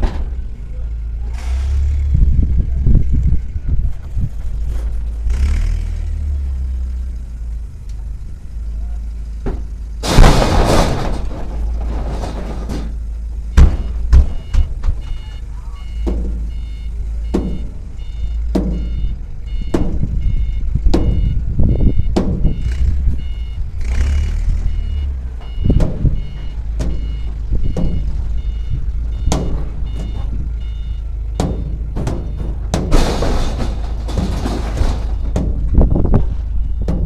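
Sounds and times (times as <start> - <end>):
low rumble: 0.0 - 15.2, 15.8 - 37.0
regular thud: 9.4 - 15.1, 16.0 - 16.6, 17.2 - 17.8, 18.4 - 21.4, 22.0 - 22.6, 25.4 - 37.0
reversing alarm beeping: 13.4 - 37.0.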